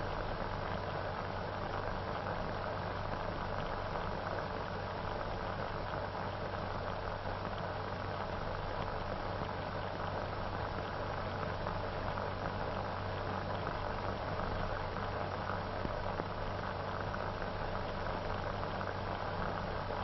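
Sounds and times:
film soundtrack hiss and crackle: 0.0 - 20.0.

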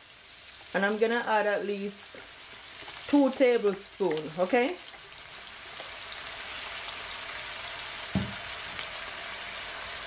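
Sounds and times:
vegetables sizzling in oil: 0.0 - 10.0
low thump: 8.2 - 8.4.

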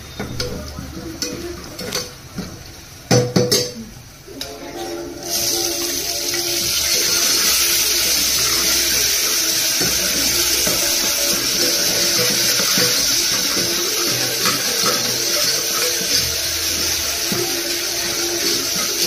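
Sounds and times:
faint background music: 0.0 - 19.0
vegetables hissing in hot oil: 5.2 - 19.0.

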